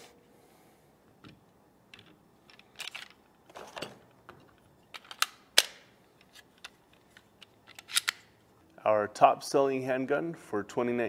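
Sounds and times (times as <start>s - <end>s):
pistol clicks and knocks: 5.0s - 5.9s.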